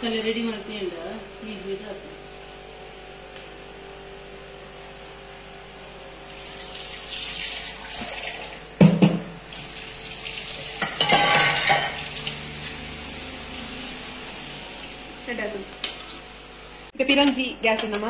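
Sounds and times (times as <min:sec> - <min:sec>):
food sizzling: 0:09.5 - 0:16.5.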